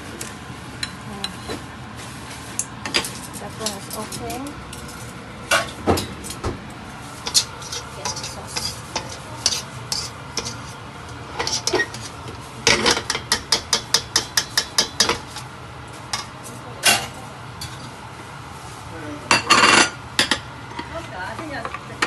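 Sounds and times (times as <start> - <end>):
wire skimmer scraping steel pan: 7.1 - 13.2.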